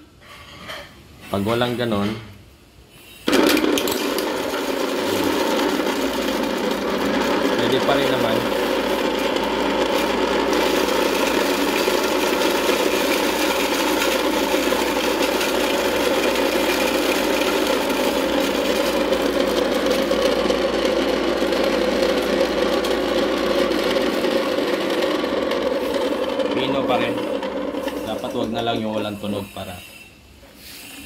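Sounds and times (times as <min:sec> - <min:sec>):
grain grinder running: 0:03.3 - 0:29.8.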